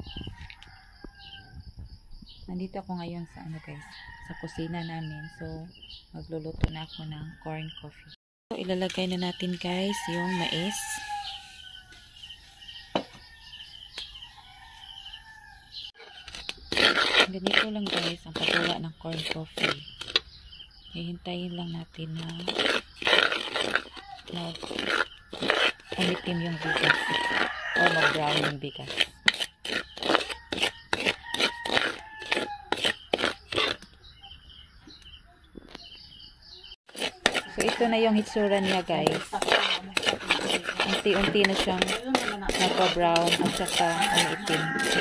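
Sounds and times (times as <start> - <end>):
metal spatula scraping rice in pan: 16.0 - 20.2, 22.2 - 33.9, 36.9 - 45.0.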